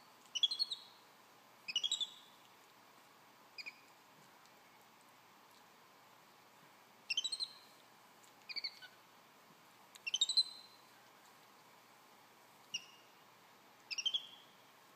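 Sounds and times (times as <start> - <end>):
monkey chirping: 0.3 - 0.9, 1.7 - 2.3, 3.6 - 3.8, 7.1 - 7.6, 8.5 - 8.9, 10.0 - 10.7, 12.7 - 13.0, 13.9 - 14.4.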